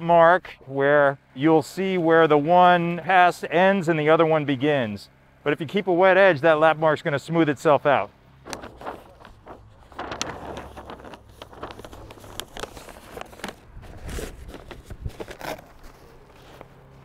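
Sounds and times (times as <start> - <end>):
paper crackling and crinkling: 8.4 - 17.0.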